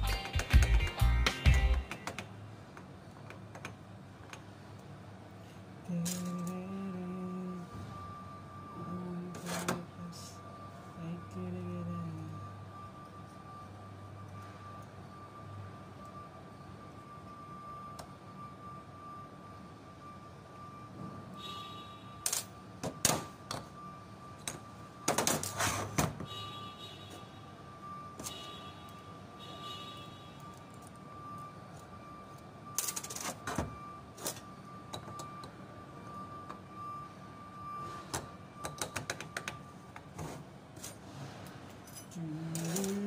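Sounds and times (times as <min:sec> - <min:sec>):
faint high whine: 0:05.4 - 0:38.8
metal parts clattering: 0:32.8 - 0:33.4, 0:41.7 - 0:43.0
man humming: 0:42.2 - 0:43.0.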